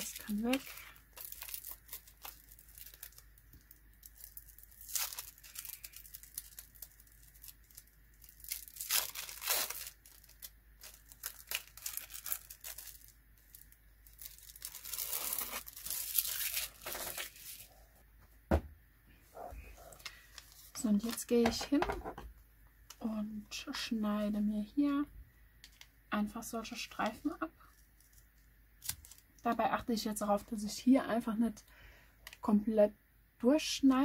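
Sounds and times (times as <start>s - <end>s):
plastic film crinkling and tearing: 0.0s - 17.8s, 27.6s - 29.2s.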